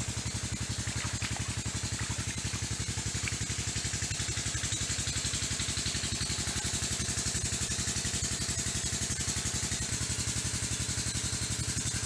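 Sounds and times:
stream flowing: 0:00.0 - 0:05.0
small engine idling: 0:00.0 - 0:12.0.

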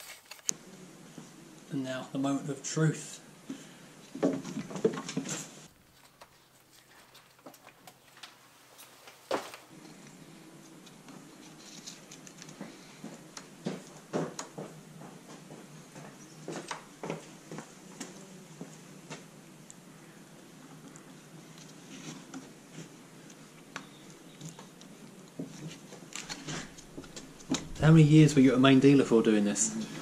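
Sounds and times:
gloved hands rustling: 0:00.0 - 0:00.5, 0:04.5 - 0:19.8, 0:20.7 - 0:28.5.

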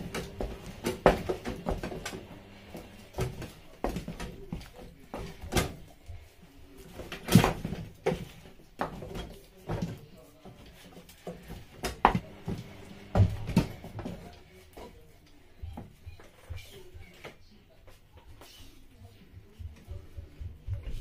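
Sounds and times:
spatula stirring thick dough: 0:00.0 - 0:21.0.

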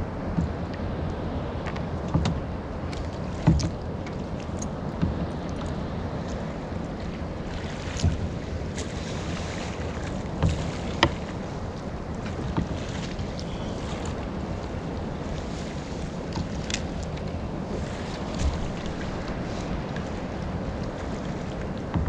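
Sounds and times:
water around kayak: 0:00.0 - 0:22.0
wind on microphone: 0:00.0 - 0:22.0
light knocks and clicks: 0:01.6 - 0:06.4, 0:07.7 - 0:08.9, 0:10.0 - 0:14.3, 0:21.6 - 0:22.0.

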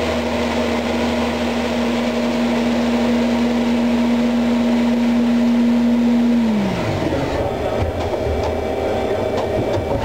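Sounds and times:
lathe spindle spinning: 0:00.0 - 0:10.0.

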